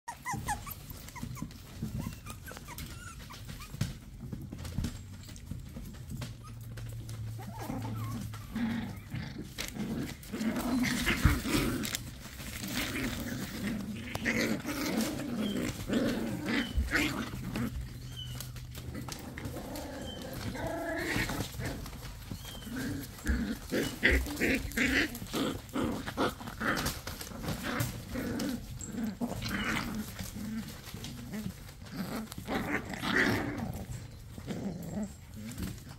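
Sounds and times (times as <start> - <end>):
puppies play growling: 0.0 - 35.9
puppies squeaky yips: 0.1 - 4.0, 15.2 - 18.8.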